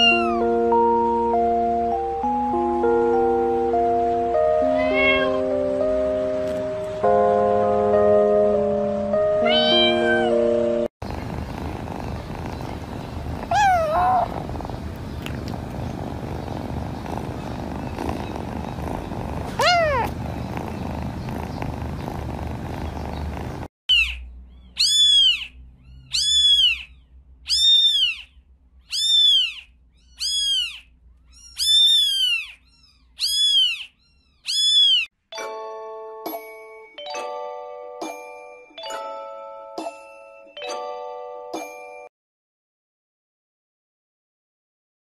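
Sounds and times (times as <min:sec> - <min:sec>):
cat mewing: 0:00.0 - 0:00.5, 0:04.7 - 0:05.4, 0:09.5 - 0:10.4, 0:11.7 - 0:23.6
cat purring: 0:11.0 - 0:23.7
kitten mewing: 0:11.5 - 0:23.7
chiming music: 0:35.3 - 0:42.1.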